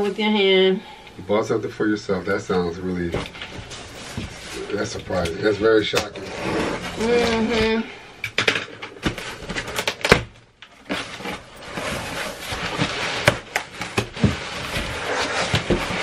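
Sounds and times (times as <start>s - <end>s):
cardboard rustling and scraping: 2.3s - 8.0s, 9.0s - 16.0s.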